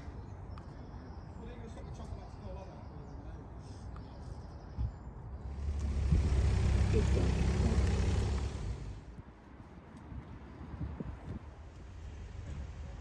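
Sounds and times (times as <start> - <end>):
vehicle passing on road: 5.4 - 9.2.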